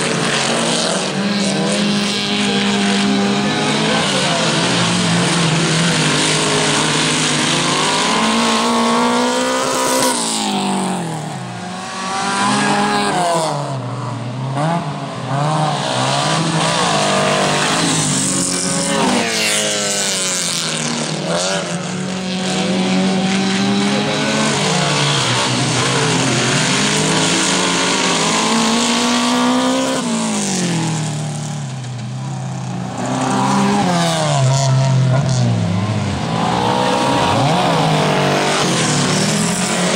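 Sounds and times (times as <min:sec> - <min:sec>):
race car engines revving: 0:00.0 - 0:39.9.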